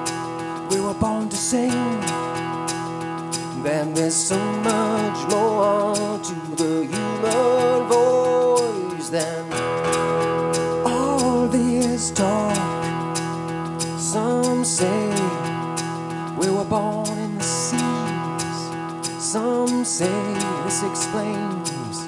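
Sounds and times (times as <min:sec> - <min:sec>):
strummed acoustic guitar: 0:00.0 - 0:22.0
wavering melodic line: 0:09.2 - 0:15.4.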